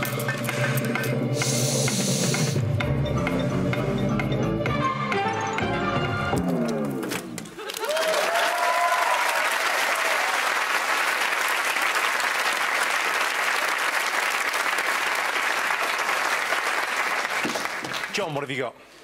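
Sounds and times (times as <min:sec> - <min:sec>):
studio audience applauding: 0:07.5 - 0:18.5.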